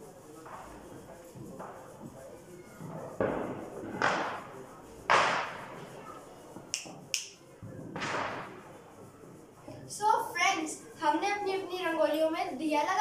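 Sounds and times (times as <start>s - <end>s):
sharp bangs: 2.9s - 9.2s.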